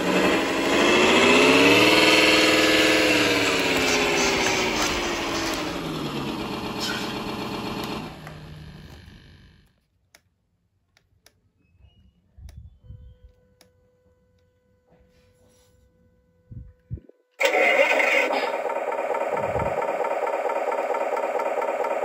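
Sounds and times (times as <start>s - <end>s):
simulated truck engine from speaker: 0.0s - 9.7s, 17.4s - 22.0s.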